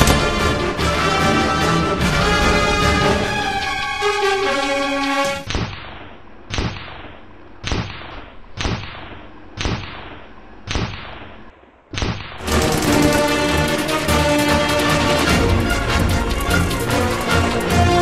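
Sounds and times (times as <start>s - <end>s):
sharp booming hits: 0.0s - 1.0s
music: 0.0s - 5.5s, 12.4s - 18.0s.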